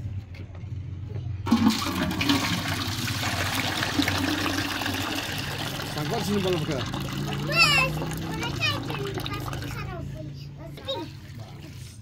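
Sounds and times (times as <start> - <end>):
water pouring into metal bucket: 1.5 - 9.9.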